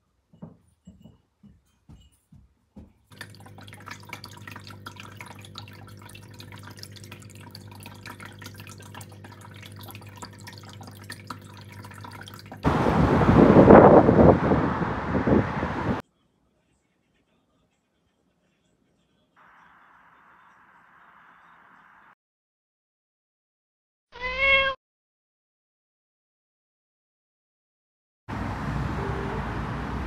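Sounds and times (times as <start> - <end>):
water trickling and dripping: 3.1 - 12.8
loud outdoor noise: 12.6 - 16.0, 28.3 - 30.0.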